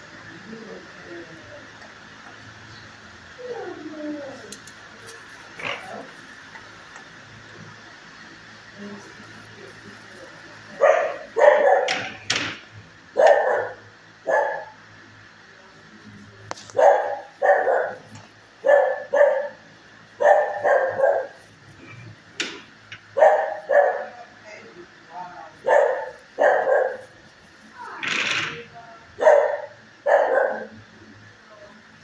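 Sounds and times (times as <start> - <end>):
dogs barking: 5.1 - 7.1, 9.3 - 12.4, 13.1 - 14.9, 16.6 - 24.4, 25.5 - 27.5, 29.1 - 30.8.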